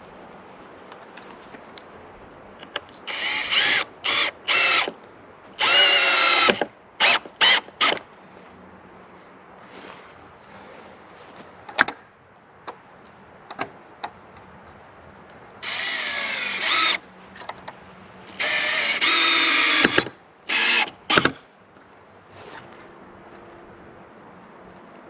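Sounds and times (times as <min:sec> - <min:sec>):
cordless drill driving screws: 0:03.1 - 0:05.0, 0:05.6 - 0:08.0, 0:15.6 - 0:17.0, 0:18.3 - 0:21.4.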